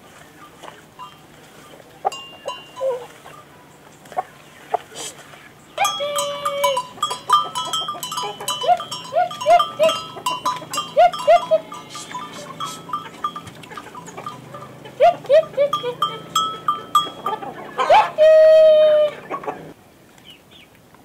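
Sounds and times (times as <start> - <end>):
chickens clucking: 0.3 - 20.4
animal bells clinking: 0.9 - 3.6, 5.8 - 18.2.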